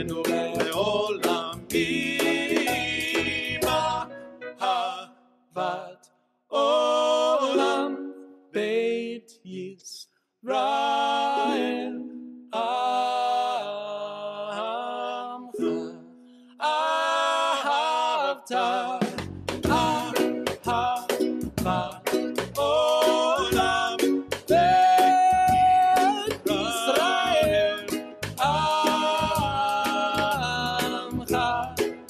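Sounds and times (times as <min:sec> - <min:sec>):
man singing pop song: 0:00.0 - 0:04.0, 0:17.6 - 0:32.0
light instrumental accompaniment: 0:00.0 - 0:04.8, 0:19.1 - 0:32.0.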